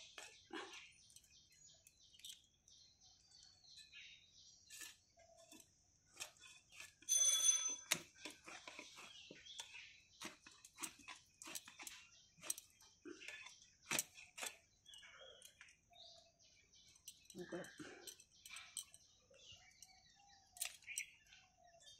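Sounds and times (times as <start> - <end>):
faint bird chirps: 0.0 - 21.9
ringing tone: 7.1 - 7.9.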